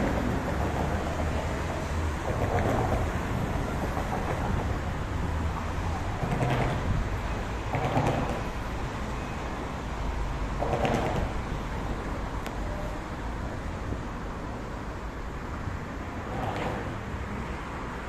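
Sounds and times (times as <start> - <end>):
low rumbling background noise: 0.0 - 18.0.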